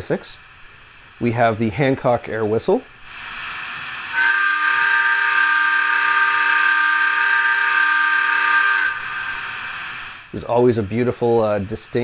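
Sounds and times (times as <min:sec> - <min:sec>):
soft rush of air: 0:00.0 - 0:04.2, 0:08.9 - 0:12.0
air whistle chord from speaker: 0:04.1 - 0:09.6.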